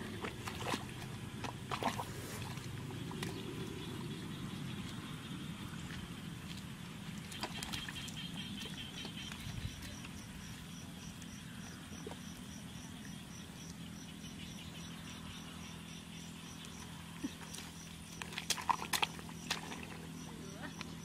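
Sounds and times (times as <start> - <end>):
splashes in wet mud: 0.0 - 4.0, 4.7 - 10.5, 16.7 - 21.0.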